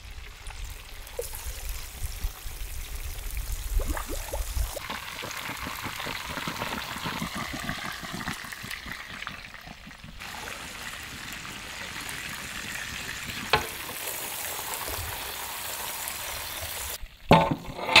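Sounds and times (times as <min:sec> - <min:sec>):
hot oil sizzling: 0:00.0 - 0:18.0.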